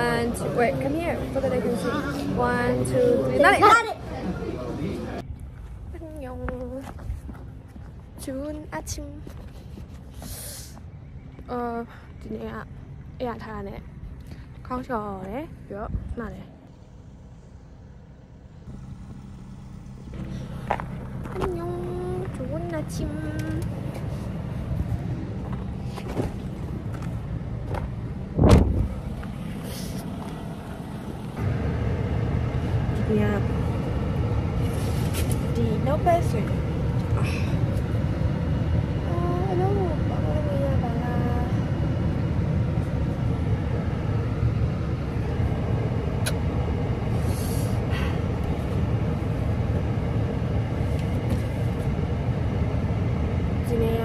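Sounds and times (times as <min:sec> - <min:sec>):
vehicle rumble: 0:00.0 - 0:54.0
loud thump: 0:28.4 - 0:28.9.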